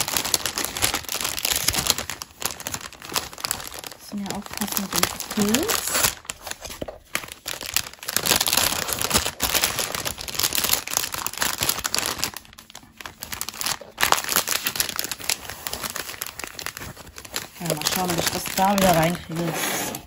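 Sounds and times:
plastic bag crinkling: 0.0s - 20.0s.

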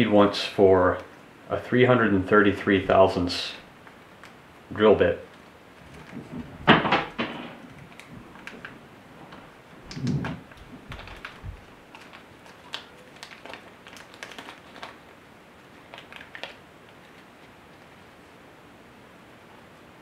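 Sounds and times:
plastic bag crinkling: 5.2s - 8.8s, 9.8s - 18.2s.

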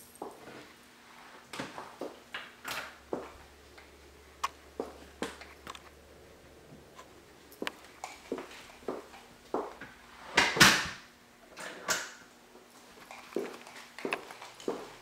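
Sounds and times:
footsteps on tiled floor: 4.7s - 5.6s, 7.5s - 10.0s, 12.7s - 15.0s.

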